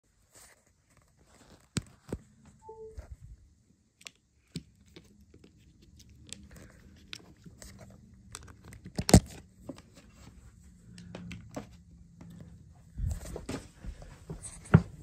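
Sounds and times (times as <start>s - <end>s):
small handling clicks and rustling: 0.3s - 2.6s, 4.0s - 13.3s.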